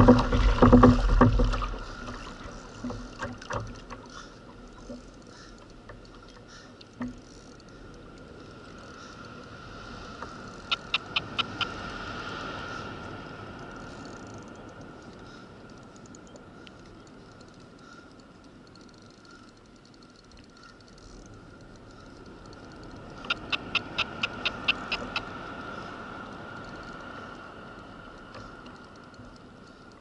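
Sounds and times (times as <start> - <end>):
water lapping around kayak: 0.0 - 30.0
sharp clicks: 10.6 - 11.7, 18.8 - 25.2.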